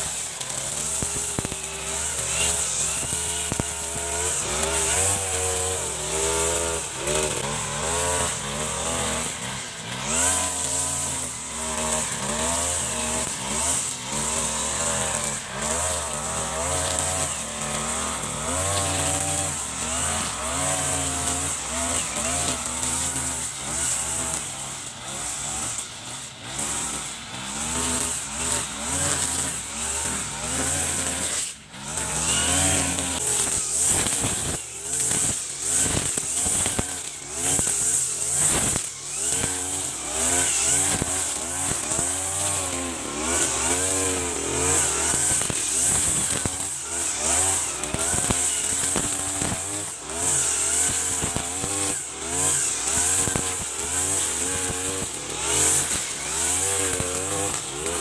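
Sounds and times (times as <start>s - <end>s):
brush cutter engine running: 0.0s - 58.0s.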